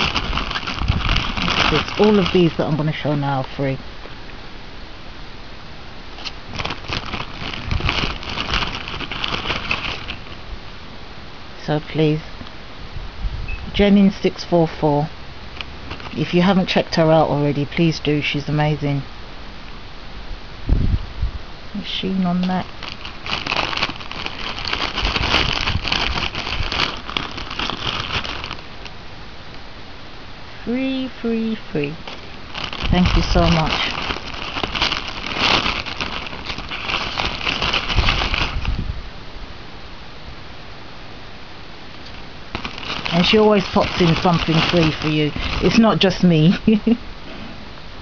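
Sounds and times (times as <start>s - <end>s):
plastic packaging crinkling: 0.0s - 3.6s, 6.2s - 10.4s, 15.5s - 17.2s, 22.1s - 29.0s, 30.8s - 38.8s, 42.0s - 46.9s.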